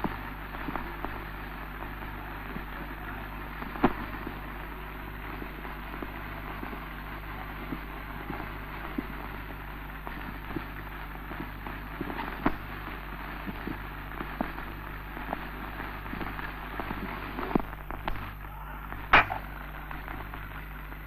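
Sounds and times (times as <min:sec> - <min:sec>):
film soundtrack hiss and hum: 0:00.0 - 0:21.0
film crackle clicks and pops: 0:03.6 - 0:04.5, 0:05.1 - 0:21.0
loud splice pop: 0:19.0 - 0:20.2.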